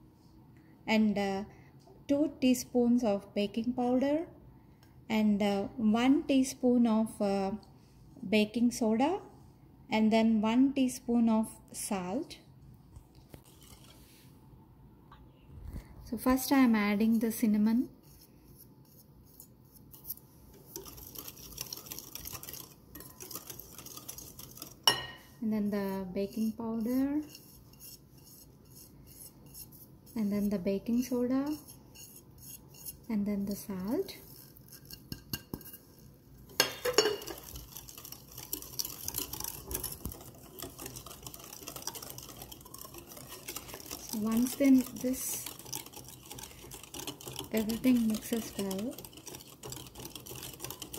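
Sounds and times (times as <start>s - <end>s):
whisk clicking against glass bowl: 18.9s - 50.9s.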